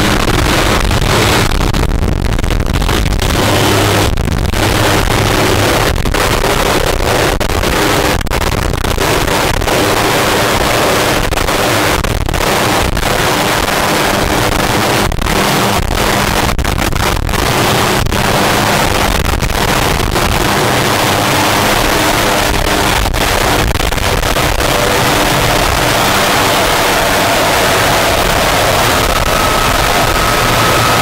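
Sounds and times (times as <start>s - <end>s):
high turbine whine: 0.0s - 7.2s, 12.4s - 31.0s
helicopter engine and rotors: 17.4s - 31.0s.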